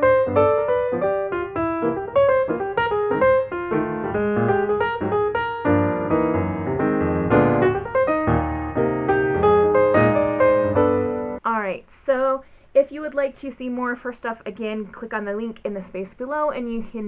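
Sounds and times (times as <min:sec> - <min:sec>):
piano music: 0:00.0 - 0:11.4.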